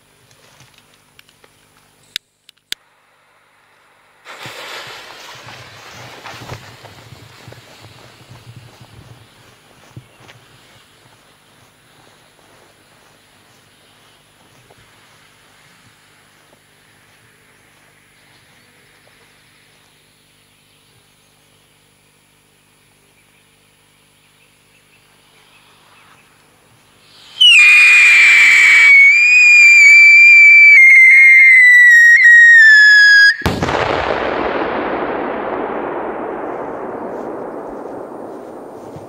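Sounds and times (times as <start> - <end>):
firecracker bang: 4.2 - 7.8, 27.4 - 39.0
fuse hissing: 25.2 - 32.7
shrill firework whistle: 27.1 - 33.5.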